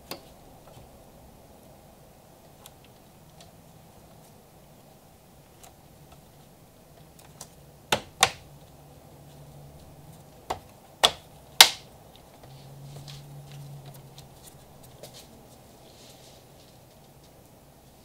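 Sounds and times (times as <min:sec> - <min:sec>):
plastic clips snapping: 0:10.5 - 0:11.9.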